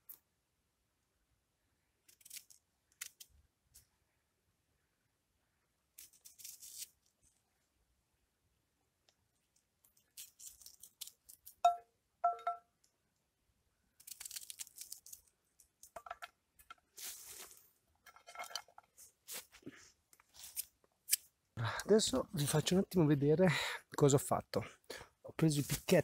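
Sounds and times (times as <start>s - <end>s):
knife cutting and scraping food: 10.0s - 11.5s.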